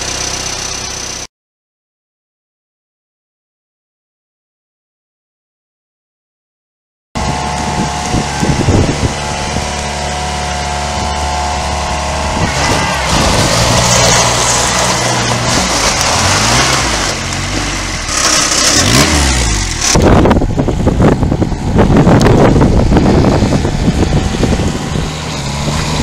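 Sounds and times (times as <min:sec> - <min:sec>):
vehicle engine running: 0:00.0 - 0:01.3, 0:07.2 - 0:26.0
wind noise: 0:07.2 - 0:26.0.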